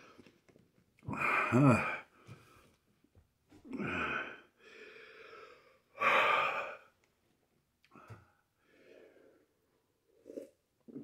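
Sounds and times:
man breathing hard: 3.8s - 6.9s.

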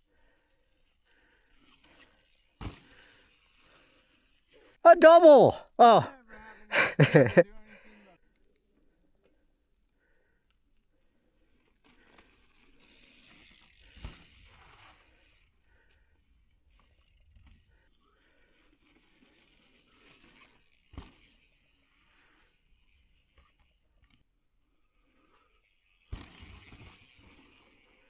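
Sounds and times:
bike freehub ratchet ticking: 1.4s - 3.8s.

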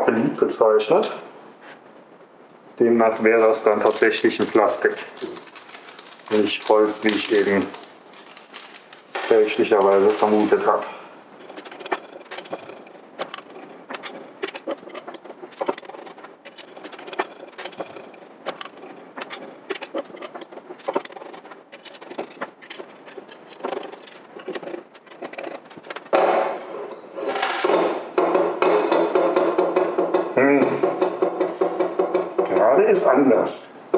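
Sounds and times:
metal screws and tools clinking: 7.2s - 28.0s.

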